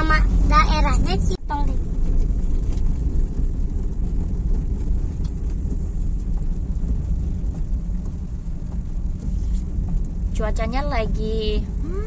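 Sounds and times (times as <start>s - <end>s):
engine and tyres rumbling on wet road: 0.0s - 12.0s.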